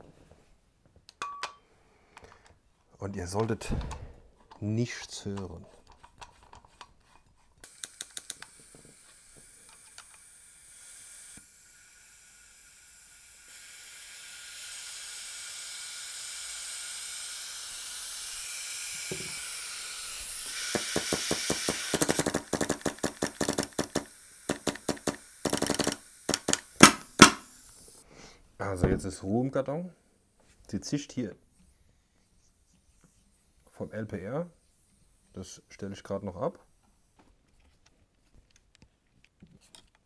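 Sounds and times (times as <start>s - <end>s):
compressed air hissing: 7.6s - 28.4s
rapid sharp clicks and knocks: 20.7s - 27.4s.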